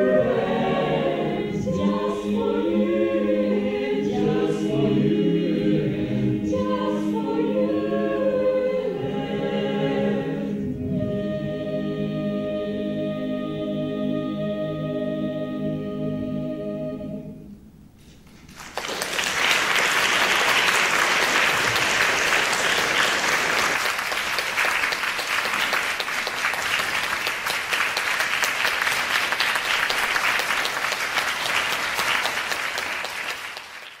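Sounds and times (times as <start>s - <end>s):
a cappella chorus chord: 0.0s - 17.8s
audience applause: 18.2s - 34.0s.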